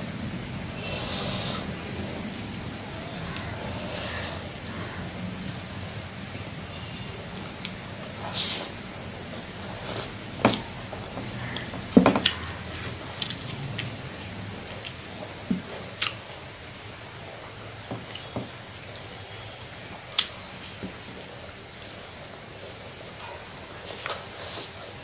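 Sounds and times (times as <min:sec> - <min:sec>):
wet chewing and smacking: 0:09.5 - 0:16.4, 0:18.0 - 0:25.0.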